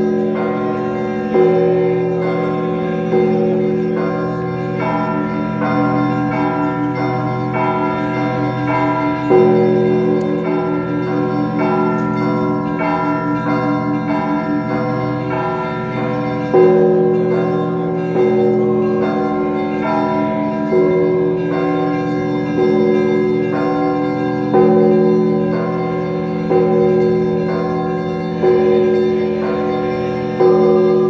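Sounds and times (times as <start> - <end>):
deep church bell: 0.0 - 31.0
small church bells ringing: 0.0 - 31.0.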